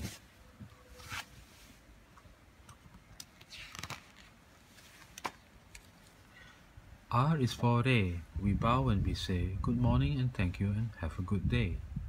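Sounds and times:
paper page rustling: 3.2 - 6.2.

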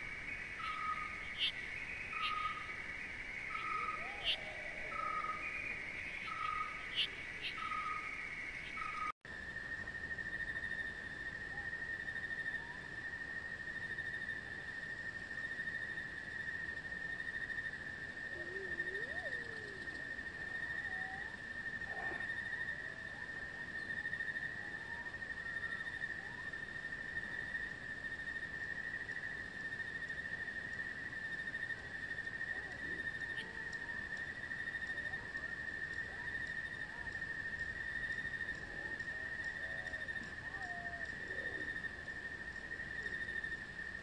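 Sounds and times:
faint short insect chirps: 0.0 - 9.1
insect high trill: 0.0 - 9.2.

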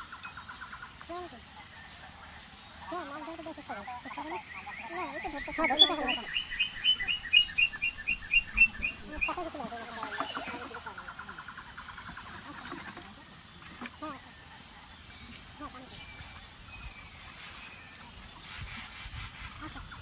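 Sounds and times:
lower bird trill: 0.0 - 12.8.

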